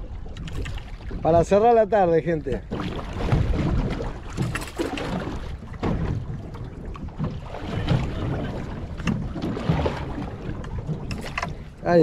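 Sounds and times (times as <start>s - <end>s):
water lapping against boat: 0.0s - 12.0s
wind buffeting microphone: 0.0s - 12.0s
short knocks or splashes: 2.4s - 11.8s.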